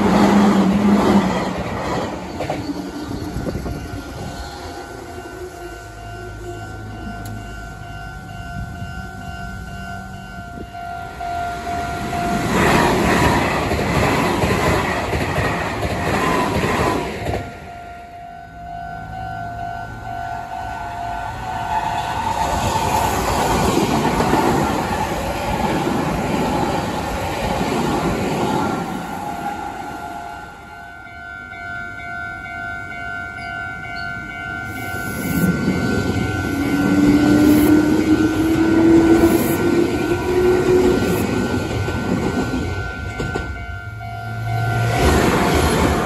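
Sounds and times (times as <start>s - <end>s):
train motor whine: 0.0s - 17.8s, 34.3s - 46.0s.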